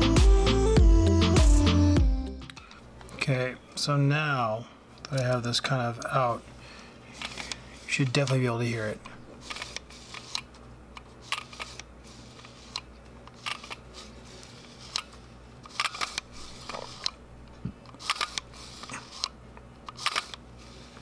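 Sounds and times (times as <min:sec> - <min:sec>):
camera lens clicking and crunching: 0:07.1 - 0:20.5.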